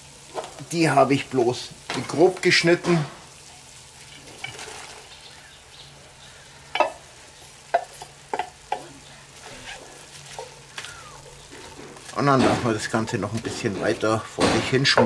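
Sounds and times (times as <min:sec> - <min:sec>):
meat sizzling in a pot: 0:00.0 - 0:15.0
wooden spatula knocking on metal: 0:06.7 - 0:07.0, 0:07.7 - 0:08.9, 0:11.5 - 0:15.0.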